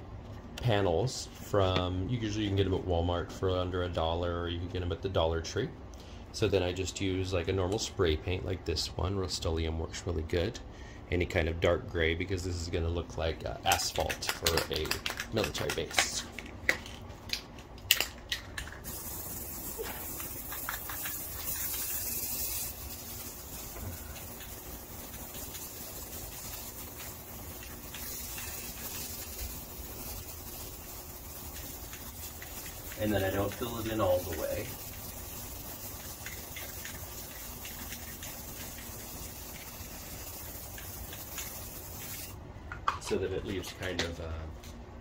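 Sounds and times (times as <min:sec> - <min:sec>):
spray can clicks: 0:16.7 - 0:42.3
spray paint hissing: 0:18.6 - 0:42.4.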